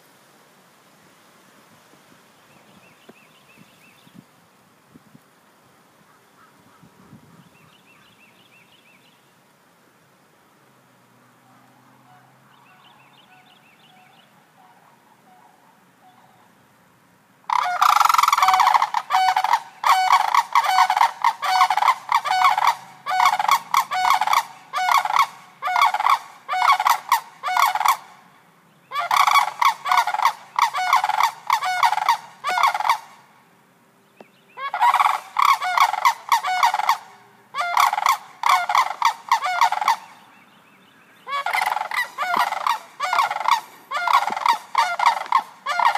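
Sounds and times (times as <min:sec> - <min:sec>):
cranes calling in rattling bugles: 0:17.4 - 0:28.2, 0:28.9 - 0:33.3, 0:34.6 - 0:40.2, 0:41.2 - 0:45.9.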